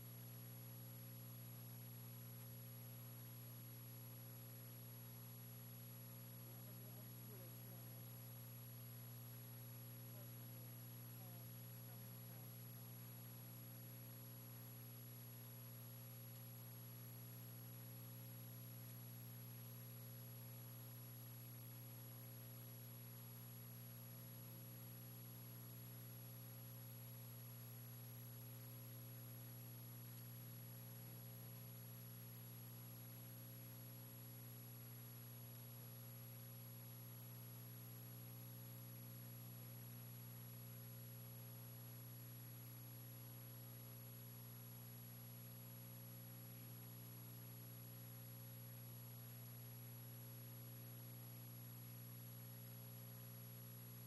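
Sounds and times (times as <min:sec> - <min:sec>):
faint electrical hum: 0:00.0 - 0:54.0
low hiss: 0:06.4 - 0:45.5.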